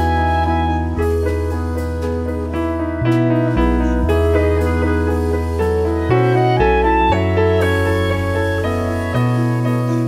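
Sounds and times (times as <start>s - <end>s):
woodwind melody: 0.0s - 1.7s
electric bass guitar: 0.0s - 10.0s
keyboard chords: 0.0s - 10.0s.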